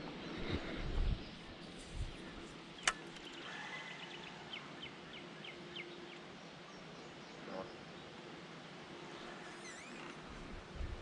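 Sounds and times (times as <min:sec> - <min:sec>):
riverside ambience: 0:00.0 - 0:11.0
sharp click: 0:02.8 - 0:03.4.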